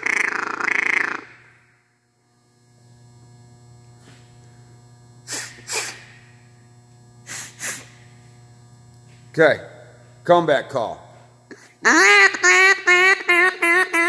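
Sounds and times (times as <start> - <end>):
duck call chatter: 0.0 - 1.5, 11.8 - 14.0.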